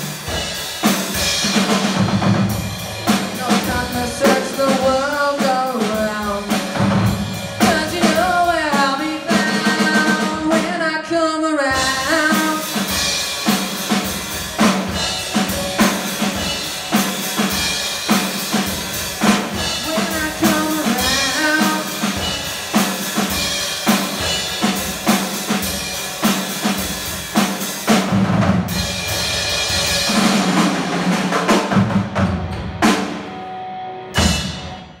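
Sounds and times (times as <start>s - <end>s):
drum kit: 0.0s - 11.0s, 11.7s - 35.0s
person singing into microphone: 3.4s - 6.8s, 7.6s - 12.8s, 19.8s - 22.3s
electric guitar: 31.6s - 35.0s.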